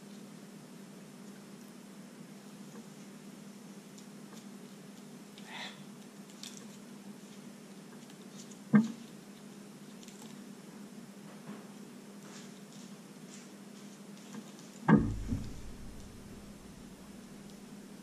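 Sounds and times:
low steady hum: 14.2 - 18.0
sharp knock: 14.9 - 16.9.

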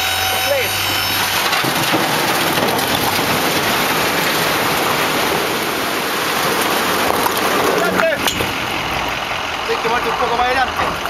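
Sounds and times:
concrete rubble clattering: 0.6 - 9.2.

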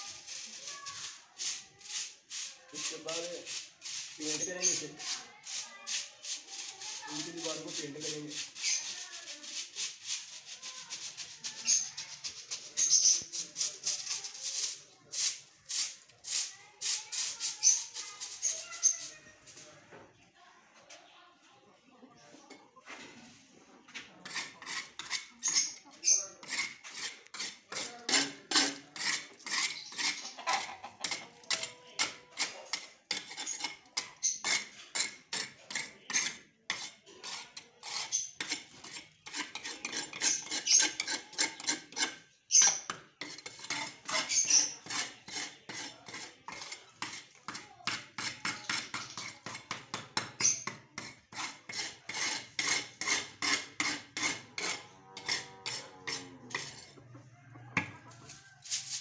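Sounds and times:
metal scraper scraping wall: 24.2 - 57.0.

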